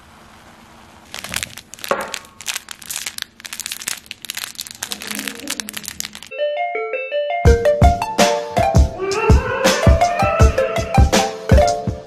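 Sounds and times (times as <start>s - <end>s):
plastic packet crinkling: 1.0s - 6.3s.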